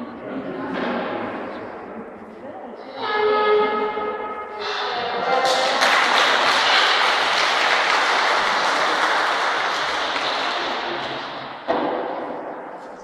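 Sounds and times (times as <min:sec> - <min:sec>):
audience applauding: 0:05.2 - 0:11.6.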